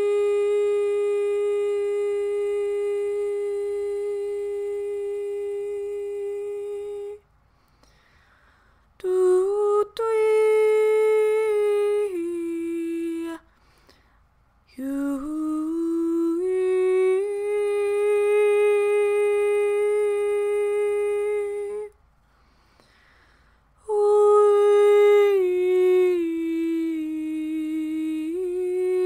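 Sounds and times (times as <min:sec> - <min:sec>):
woman humming long notes: 0:00.0 - 0:07.2, 0:14.8 - 0:22.0, 0:23.9 - 0:29.0.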